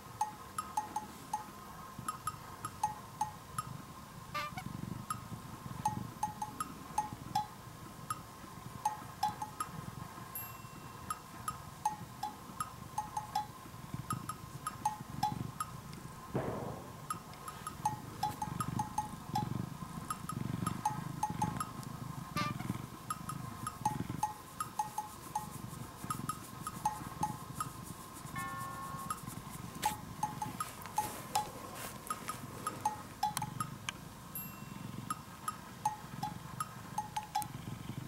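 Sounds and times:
cat purring: 0:00.7 - 0:10.3, 0:10.9 - 0:38.0
light music with bell notes: 0:08.9 - 0:13.6, 0:23.2 - 0:33.7, 0:34.3 - 0:35.3.

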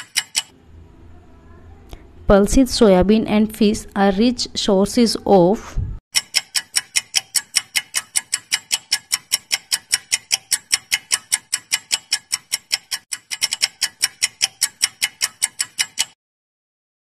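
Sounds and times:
fast clock ticking: 0:00.0 - 0:00.5, 0:06.2 - 0:16.2.

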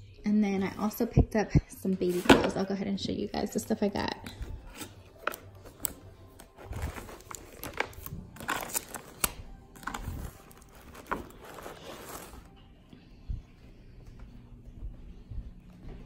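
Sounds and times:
background music: 0:00.0 - 0:16.0
plastic packaging rustling: 0:04.2 - 0:12.6.

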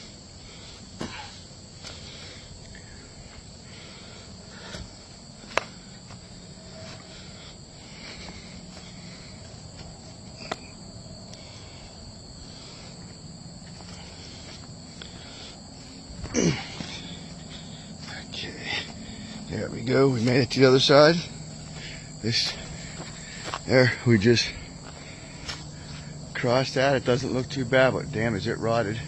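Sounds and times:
insects trilling: 0:00.0 - 0:29.0
footsteps on wooden trestle: 0:21.5 - 0:23.7, 0:24.8 - 0:26.1.

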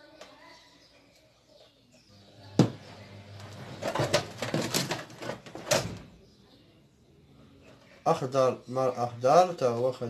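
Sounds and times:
wires knocking and rustling: 0:02.6 - 0:06.1.

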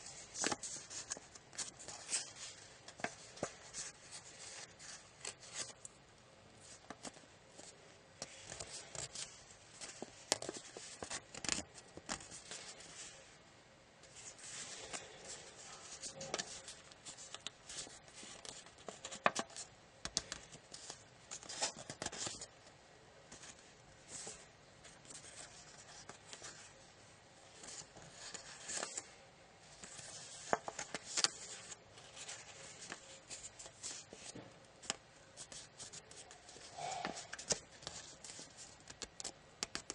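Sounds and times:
paper rustling and crackling: 0:00.0 - 0:06.0, 0:06.6 - 0:13.3, 0:14.1 - 0:22.6, 0:23.3 - 0:39.9
sharp clicks of paper folds: 0:06.8 - 0:12.9, 0:14.6 - 0:22.5, 0:29.7 - 0:39.9.

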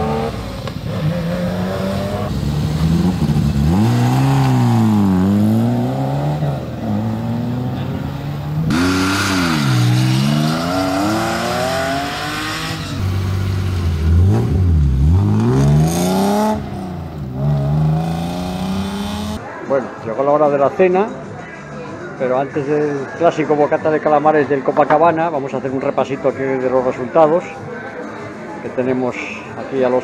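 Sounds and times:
rally car engines revving: 0:00.0 - 0:19.4.

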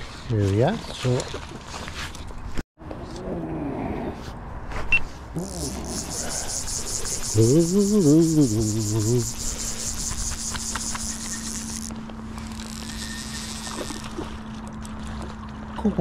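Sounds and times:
man murmuring: 0:05.3 - 0:06.6, 0:07.3 - 0:09.5
high pulsing buzz: 0:05.4 - 0:14.7.

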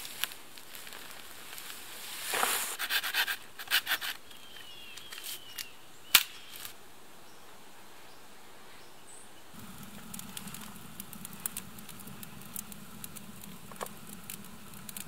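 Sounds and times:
rustling in dry brush: 0:00.0 - 0:04.2.

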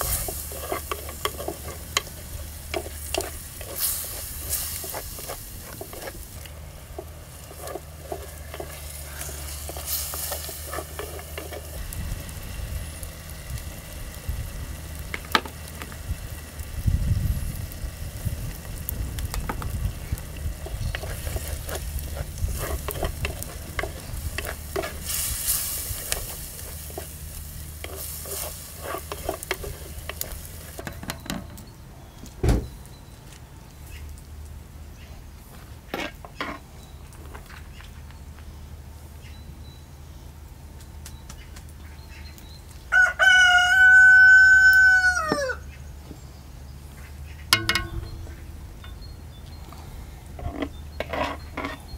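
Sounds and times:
steam hiss: 0:00.0 - 0:19.2, 0:19.9 - 0:30.8
wooden paddle stirring in pot: 0:00.0 - 0:31.2, 0:47.5 - 0:48.9, 0:50.3 - 0:51.9
rooster crowing: 0:42.9 - 0:45.8.

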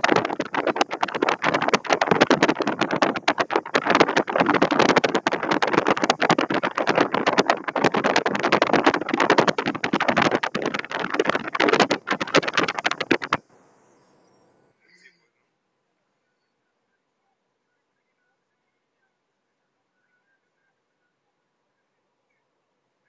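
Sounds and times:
wind buffeting microphone: 0:00.0 - 0:13.4.

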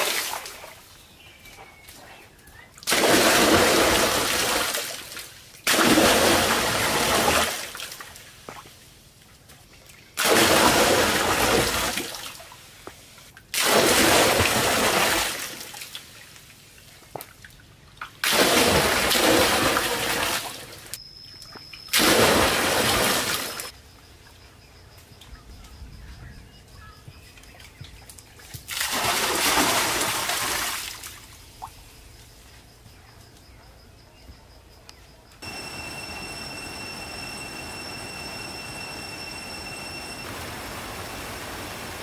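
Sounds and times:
water splashing into a stone pool: 0:00.0 - 0:00.8, 0:02.8 - 0:08.7, 0:10.2 - 0:12.6, 0:13.4 - 0:16.5, 0:17.2 - 0:21.0, 0:21.9 - 0:23.7, 0:28.5 - 0:31.7.

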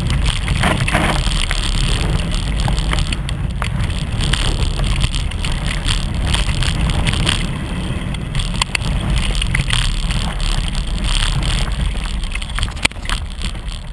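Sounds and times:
bike clicks and rattles: 0:00.0 - 0:13.9
bike riding low rumble: 0:00.0 - 0:13.9.

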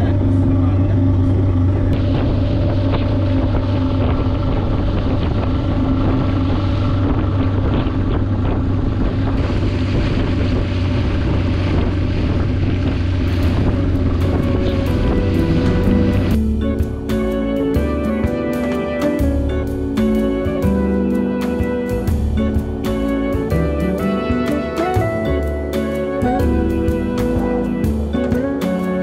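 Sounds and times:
wind buffeting microphone: 0:00.0 - 0:18.4
outboard motor droning: 0:00.0 - 0:29.0
water rushing along hull: 0:00.0 - 0:29.0.

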